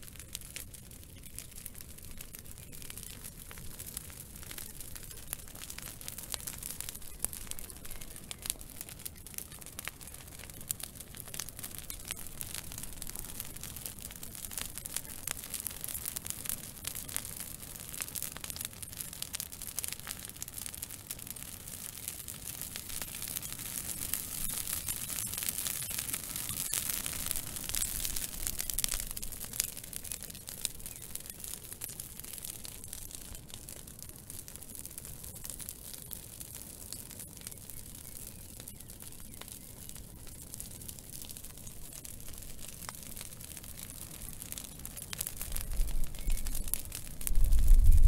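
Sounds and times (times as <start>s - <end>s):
twig fire crackling: 0.0s - 48.0s
fire hiss: 1.2s - 36.6s.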